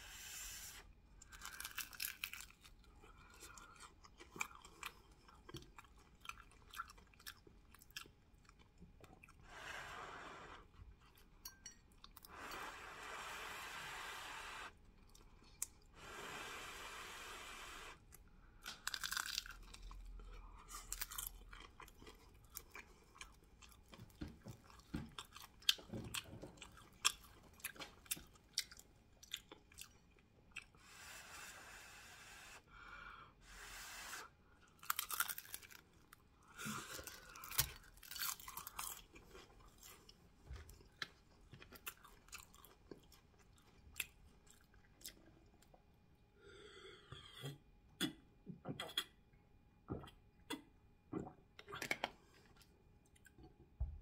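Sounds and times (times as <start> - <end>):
close chewing: 1.3 - 9.4.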